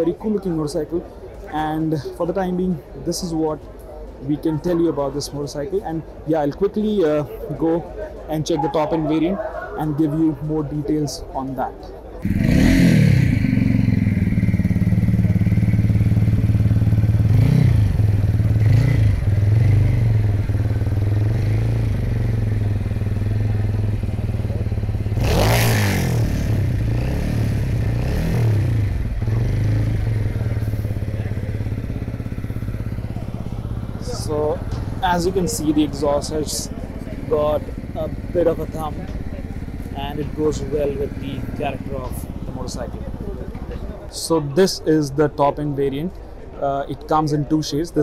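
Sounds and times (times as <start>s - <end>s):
motorcycle engine idling and revving: 11.8s - 46.7s.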